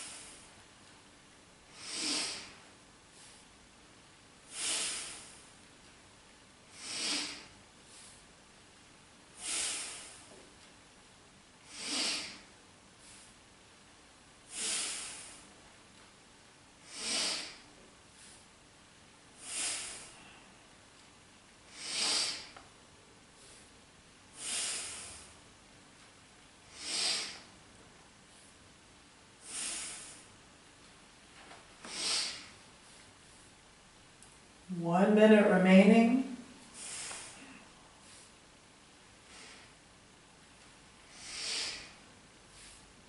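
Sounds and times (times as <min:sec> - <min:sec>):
person breathing deeply: 0:00.0 - 0:00.5, 0:01.7 - 0:03.5, 0:04.5 - 0:05.5, 0:06.7 - 0:08.2, 0:09.4 - 0:10.4, 0:11.6 - 0:13.4, 0:14.5 - 0:15.6, 0:16.8 - 0:18.4, 0:19.4 - 0:20.7, 0:21.7 - 0:22.6, 0:24.3 - 0:25.4, 0:26.7 - 0:27.5, 0:29.4 - 0:30.4, 0:31.8 - 0:33.0, 0:36.7 - 0:38.4, 0:39.2 - 0:39.8, 0:41.0 - 0:42.9.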